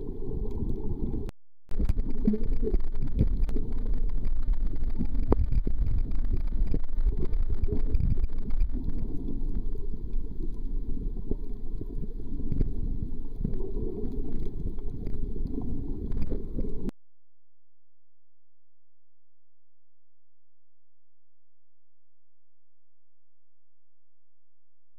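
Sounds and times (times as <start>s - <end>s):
underwater water rumble: 0.0s - 16.9s
faint clicks: 0.4s - 16.9s.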